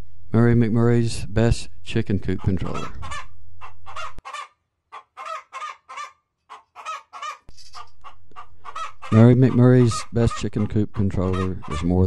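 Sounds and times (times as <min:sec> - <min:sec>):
low steady hum: 0:00.0 - 0:03.9
chickens clucking: 0:02.2 - 0:12.0.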